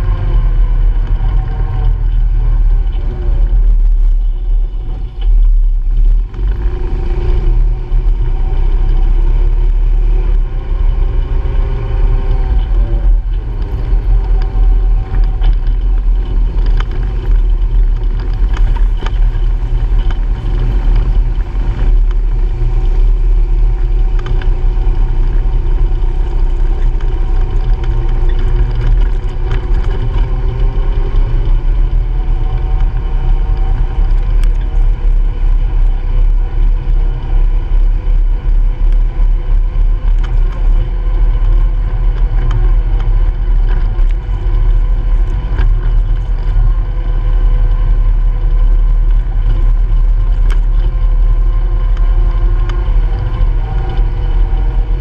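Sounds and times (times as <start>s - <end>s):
heavy low rumble: 0.0s - 55.0s
utility vehicle engine driving: 0.0s - 55.0s
clatters from bumps: 7.4s - 55.0s.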